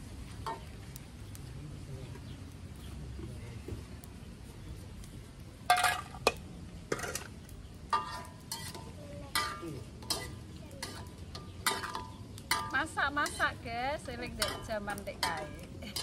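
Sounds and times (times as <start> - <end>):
spatula scraping a wok: 7.9 - 13.6.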